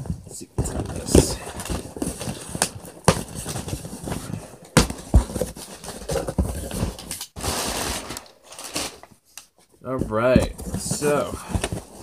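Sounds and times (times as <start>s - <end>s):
cardboard flaps scraping: 0.0s - 9.0s, 9.9s - 12.0s
sharp knocks on cardboard: 4.8s - 5.5s.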